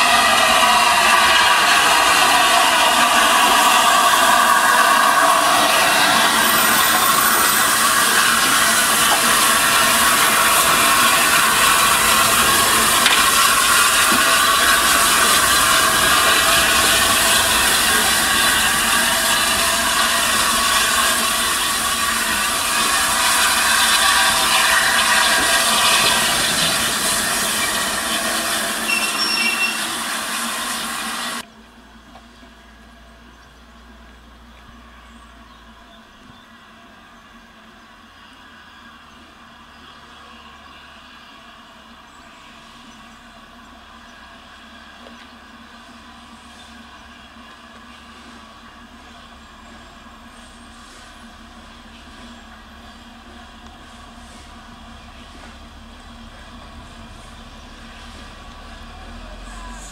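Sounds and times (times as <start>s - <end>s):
steam hissing: 0.0s - 31.4s, 42.2s - 59.9s
wavering squeal: 0.0s - 31.4s
train wheels and brakes: 0.0s - 33.3s, 38.2s - 59.9s.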